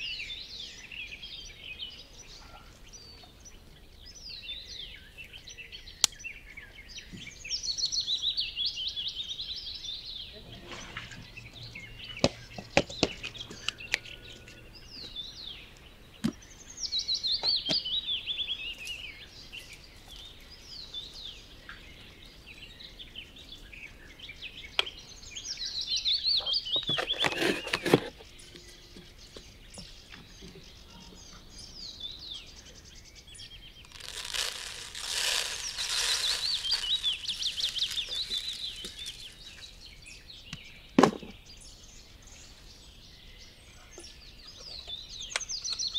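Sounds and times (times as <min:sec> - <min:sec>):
songbird trilling: 0:00.0 - 0:19.6, 0:22.7 - 0:40.9
cardboard crumpling: 0:33.9 - 0:39.7.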